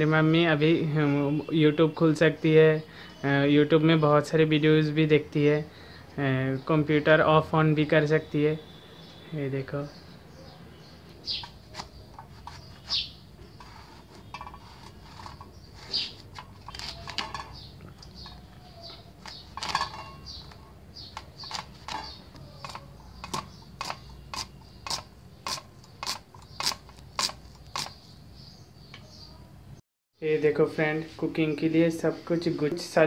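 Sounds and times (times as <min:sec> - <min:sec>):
blade cutting eggplant: 0:11.3 - 0:17.2, 0:19.1 - 0:28.0.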